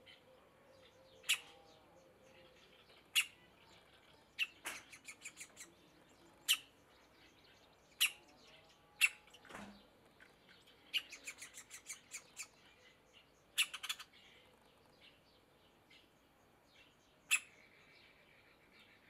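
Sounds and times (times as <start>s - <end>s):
woodpecker nestling calling: 0.0s - 6.8s, 7.7s - 8.4s, 9.0s - 9.5s, 10.2s - 14.4s, 17.2s - 17.7s.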